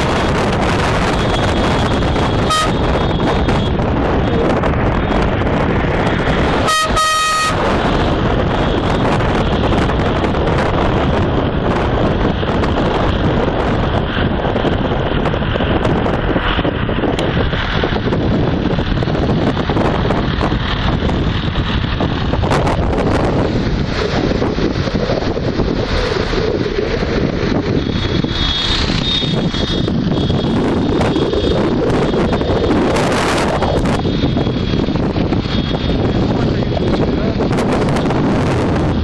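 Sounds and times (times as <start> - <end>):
road traffic rush: 0.0 - 39.0
wind on microphone: 0.0 - 39.0
car horn blast: 2.4 - 3.3, 6.6 - 7.8.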